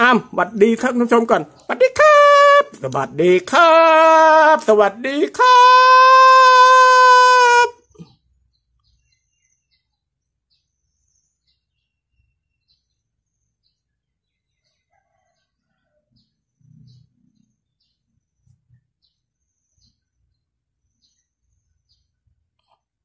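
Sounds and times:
faint bird chirps: 0:07.8 - 0:23.0.

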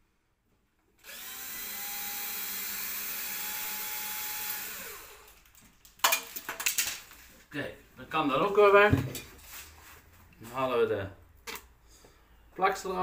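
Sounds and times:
electric drill running: 0:01.0 - 0:05.4.

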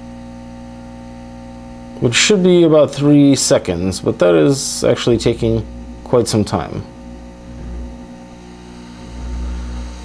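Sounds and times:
air pump humming: 0:00.0 - 0:10.0
air rushing: 0:07.4 - 0:08.2.

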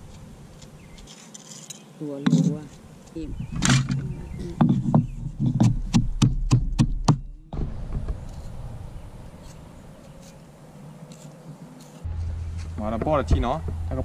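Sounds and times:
rapid sharp knocks: 0:04.6 - 0:07.3.

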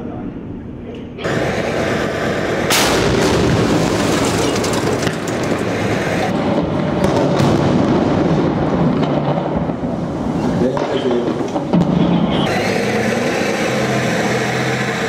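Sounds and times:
continuous rumble: 0:00.0 - 0:15.0
loud artillery blast: 0:01.3 - 0:09.9, 0:10.8 - 0:13.7
gunfire cracks: 0:02.7 - 0:05.8.

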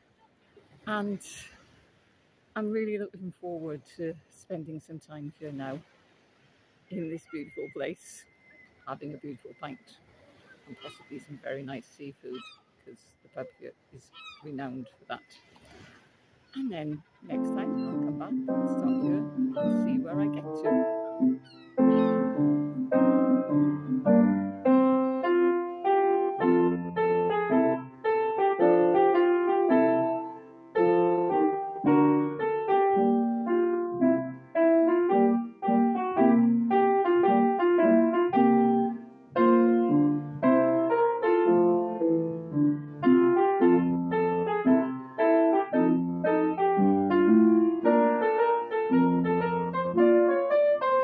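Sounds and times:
piano music: 0:17.3 - 0:51.0.

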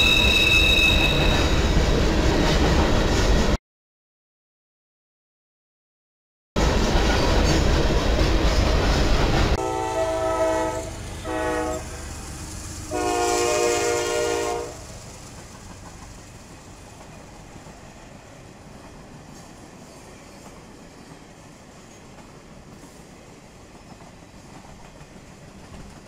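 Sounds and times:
train rolling rumble: 0:00.0 - 0:03.6, 0:06.6 - 0:26.0
locomotive air horn blasts: 0:09.6 - 0:12.1, 0:12.9 - 0:14.9.

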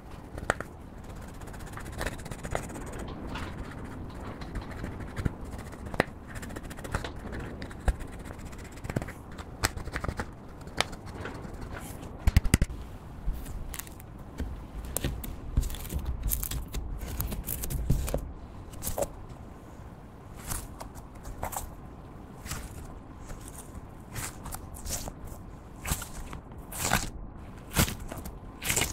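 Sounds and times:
slime crackling and squishing: 0:13.3 - 0:18.2, 0:22.4 - 0:28.9.

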